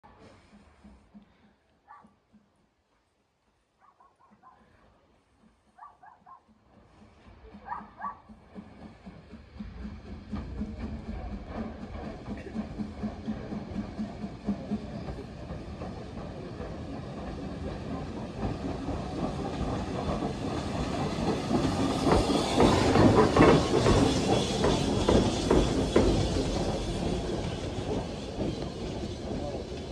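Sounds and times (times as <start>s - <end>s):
steam locomotive running: 0.0s - 29.9s
wheels clicking over rail joints: 5.2s - 29.9s
steam hissing: 6.7s - 29.9s.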